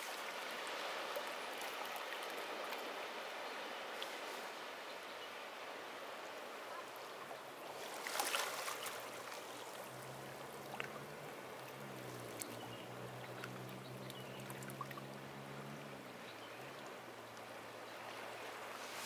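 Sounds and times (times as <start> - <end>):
ocean waves washing on beach: 0.0 - 19.0
low motor hum: 9.8 - 18.6.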